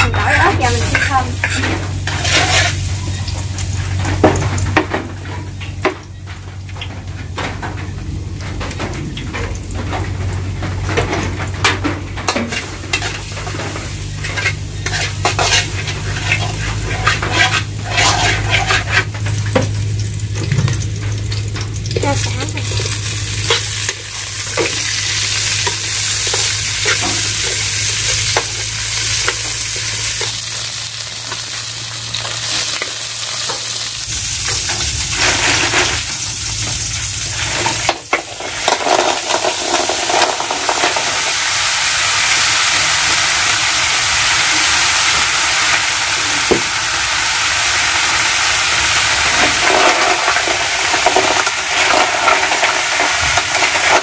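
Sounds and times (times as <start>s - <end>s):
metal spatula scraping wok: 0.0s - 4.3s, 12.2s - 19.6s, 22.0s - 42.0s
lemongrass sizzling in wok: 0.0s - 54.0s.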